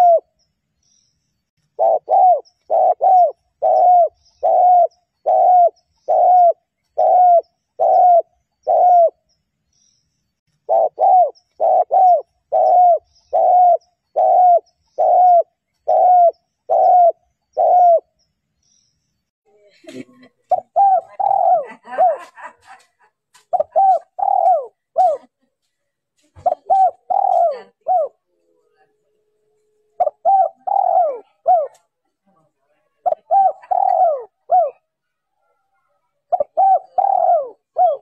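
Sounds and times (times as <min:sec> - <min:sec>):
dove cooing: 0:00.0 - 0:00.3, 0:01.7 - 0:09.2, 0:10.6 - 0:18.1, 0:20.5 - 0:22.4, 0:23.5 - 0:25.3, 0:26.4 - 0:28.2, 0:30.0 - 0:31.8, 0:33.0 - 0:34.9, 0:36.3 - 0:38.0.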